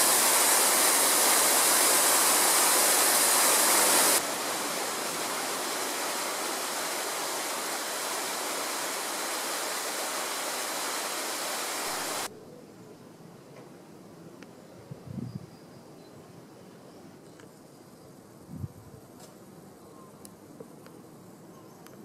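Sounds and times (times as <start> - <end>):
fountain water splashing: 0.0 - 12.3.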